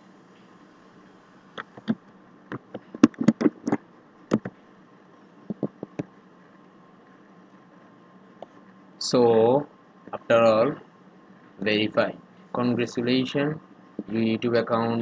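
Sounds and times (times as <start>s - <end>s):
keyboard keys clicking: 1.6s - 4.5s.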